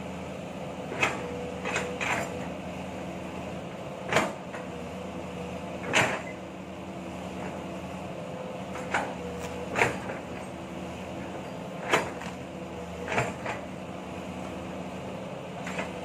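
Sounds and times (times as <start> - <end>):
excavator engine running: 0.0 - 16.0
excavator bucket clunks: 0.9 - 2.4, 4.1 - 4.7, 5.8 - 6.4, 8.7 - 10.6, 11.2 - 13.7, 15.6 - 16.0.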